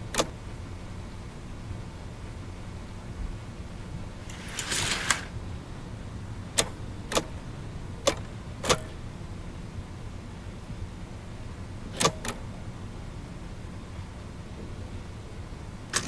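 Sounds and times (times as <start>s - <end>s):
low steady hum: 0.0s - 16.0s
short rustling: 4.2s - 5.3s.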